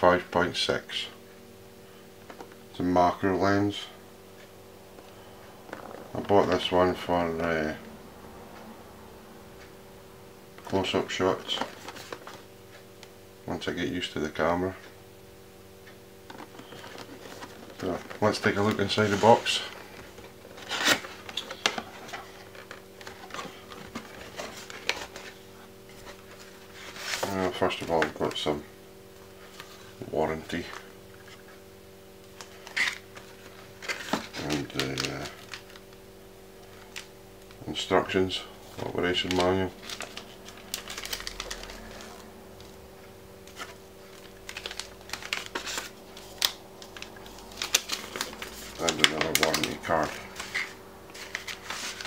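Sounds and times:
faint steady hum: 0.0 - 52.0
paper rustling and crackling: 10.6 - 12.5, 16.3 - 28.4, 32.3 - 36.0, 37.9 - 42.8, 43.4 - 52.0.

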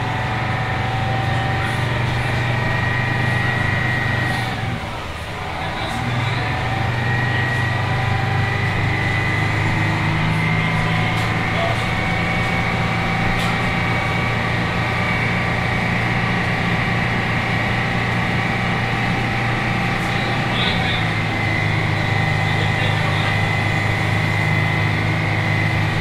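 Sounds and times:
bus diesel engine idling: 0.0 - 26.0.

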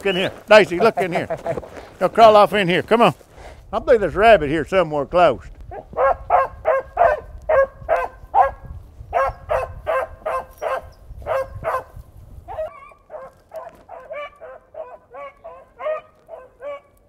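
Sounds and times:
beagles baying and yelping: 0.0 - 1.8, 5.7 - 17.0.

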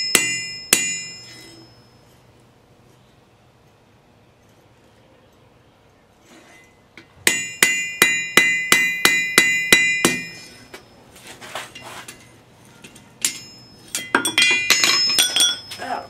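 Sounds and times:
hammer ringing on anvil: 0.0 - 2.0, 7.3 - 11.0, 13.2 - 16.0.

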